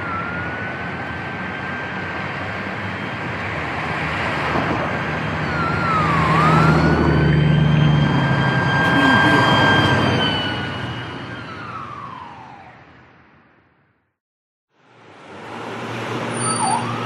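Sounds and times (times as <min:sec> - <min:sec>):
traffic rush and engine rumble: 0:00.0 - 0:13.3, 0:14.8 - 0:17.0
emergency vehicle sirens: 0:00.0 - 0:13.8, 0:15.8 - 0:17.0.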